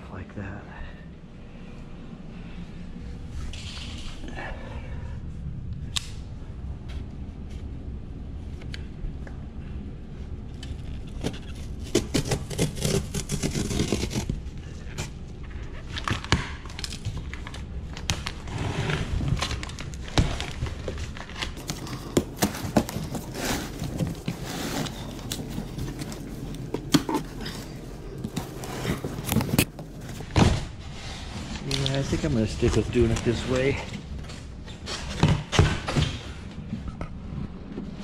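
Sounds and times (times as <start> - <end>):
cardboard scraping on hard floor: 18.4 - 21.0, 21.6 - 31.6
knife slitting cardboard box: 21.6 - 27.7.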